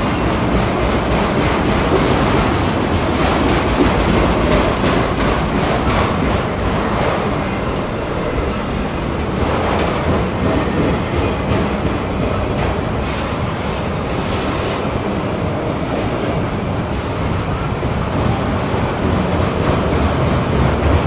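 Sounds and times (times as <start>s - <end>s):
freight train rolling past: 0.0s - 21.0s.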